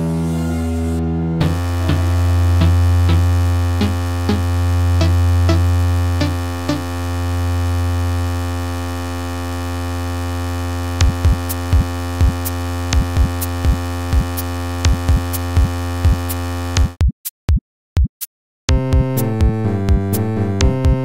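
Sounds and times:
loud low buzzing drone: 0.0s - 17.0s.

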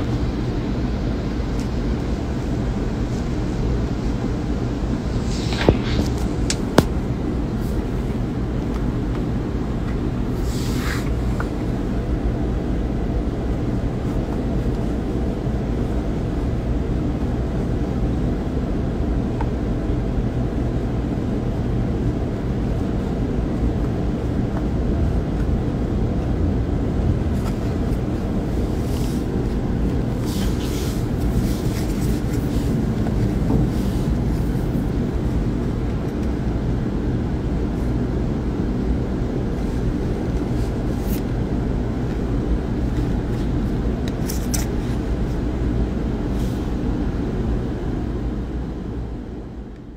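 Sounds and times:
low background rumble: 0.0s - 49.9s
soft rustles: 27.4s - 35.0s.

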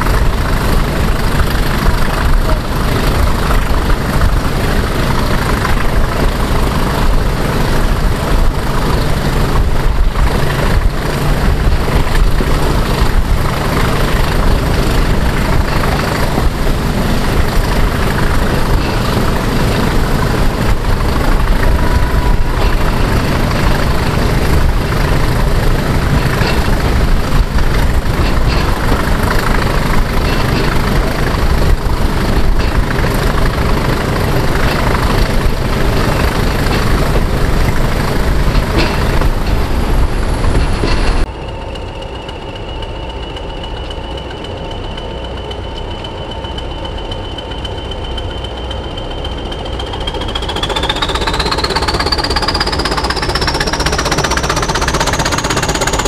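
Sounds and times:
steam locomotive clattering: 0.0s - 56.0s
steady high whistle: 41.2s - 55.7s.

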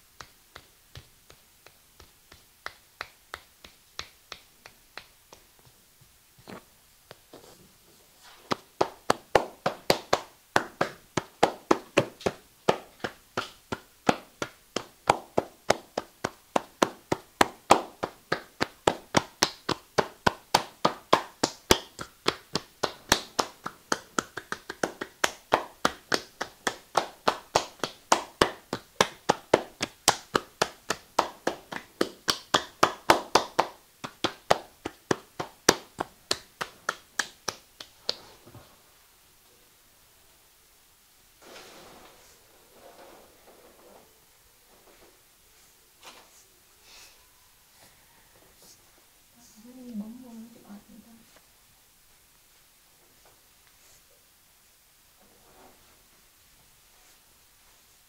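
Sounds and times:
hands clapping and slapping: 0.0s - 5.8s, 8.2s - 38.4s.

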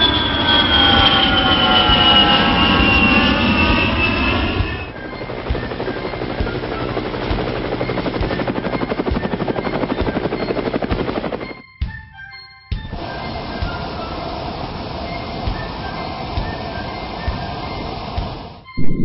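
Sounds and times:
jet engine whine flyby: 0.0s - 11.6s, 12.9s - 19.0s
helicopter rotor chop: 0.0s - 12.0s, 12.8s - 18.7s.

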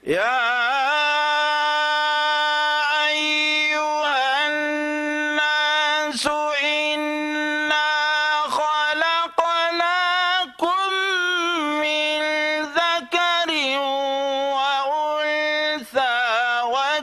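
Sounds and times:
man chanting melodic recitation: 0.0s - 17.0s.

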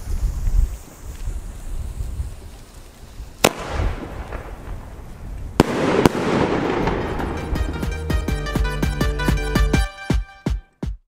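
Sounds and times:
firework launch report: 0.0s - 8.6s
firework crack: 0.0s - 8.7s
firework shell bursting bang: 3.4s - 5.0s, 5.6s - 8.2s.

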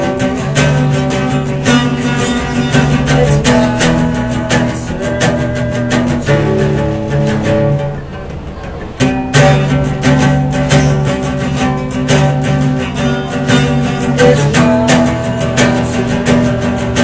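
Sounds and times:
acoustic guitar strummed: 0.0s - 17.0s.

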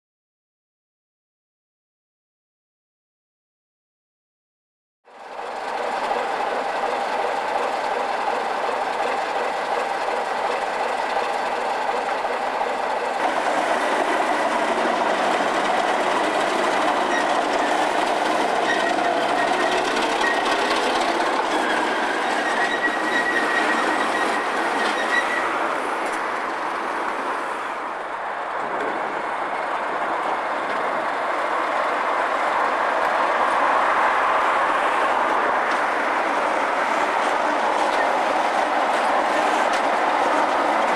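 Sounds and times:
diesel locomotive engines: 5.1s - 40.9s
wheels clattering on rail: 5.2s - 40.9s
thin high squeal: 21.5s - 25.5s.

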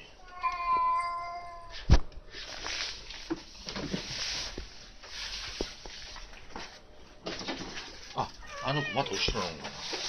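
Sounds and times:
cat meowing: 0.2s - 1.7s, 8.4s - 9.4s.

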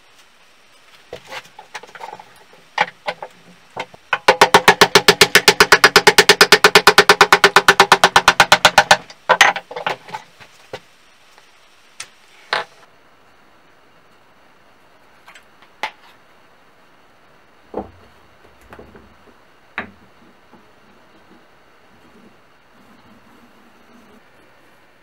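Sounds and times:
tools knocking and clinking: 2.8s - 10.0s
hammer tapping on steel chisel: 4.1s - 9.7s.

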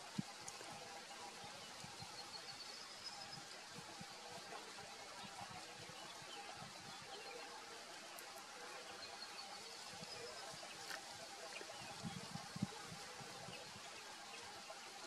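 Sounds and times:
soft steady hiss: 0.0s - 15.0s.

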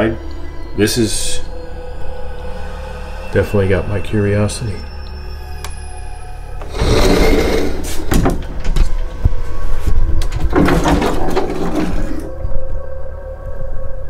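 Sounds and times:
bifold closet doors opening and shutting: 6.6s - 12.3s.

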